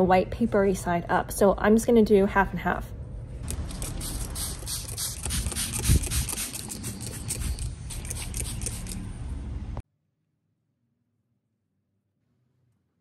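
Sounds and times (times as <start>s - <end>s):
spray bottle squirting water: 3.4s - 9.0s.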